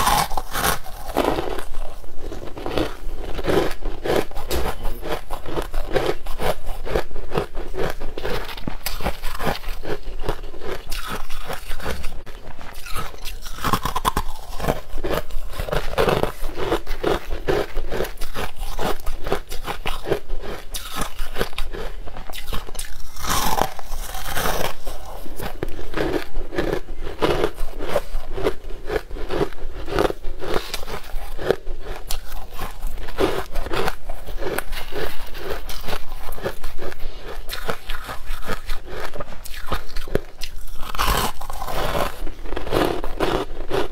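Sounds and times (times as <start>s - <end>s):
crushed ice being chewed: 0.0s - 43.9s.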